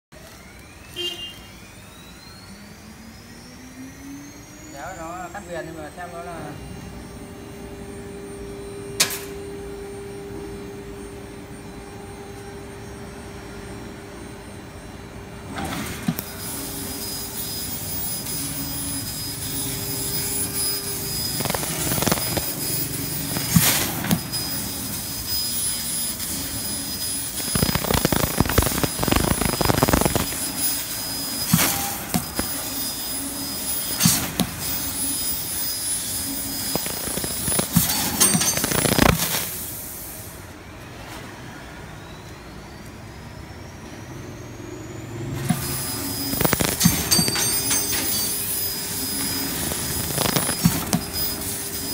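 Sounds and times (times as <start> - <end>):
laser cutting machine humming: 0.2 - 40.6, 42.6 - 51.9
loud hissing bursts: 21.1 - 24.0, 25.7 - 31.1.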